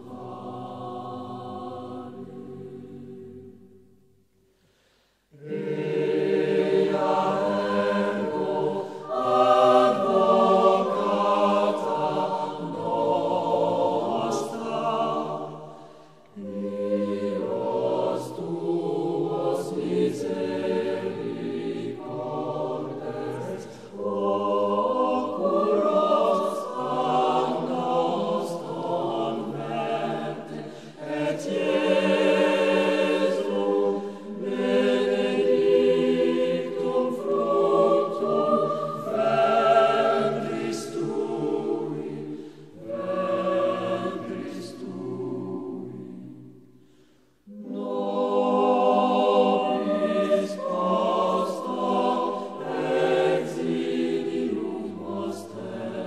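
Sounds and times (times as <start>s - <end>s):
choir singing: 0.0s - 4.1s, 5.1s - 56.0s.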